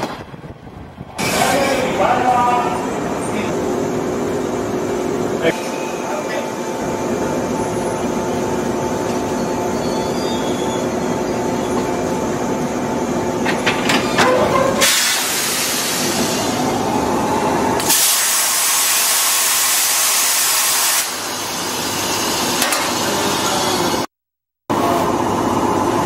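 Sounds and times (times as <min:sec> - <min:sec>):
train equipment humming: 0:00.0 - 0:24.0
compressed air hissing: 0:14.8 - 0:16.6.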